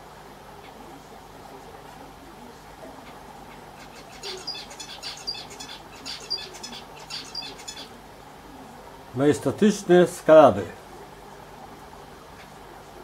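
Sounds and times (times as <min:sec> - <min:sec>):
small animal chirping: 0:03.8 - 0:07.9.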